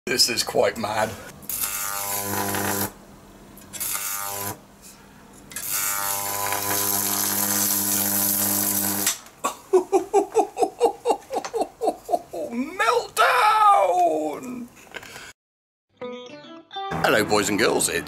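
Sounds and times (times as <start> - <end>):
electric arc buzzing and crackling: 1.4 - 3.0, 3.7 - 4.6, 5.5 - 9.2
man laughing: 9.4 - 12.9.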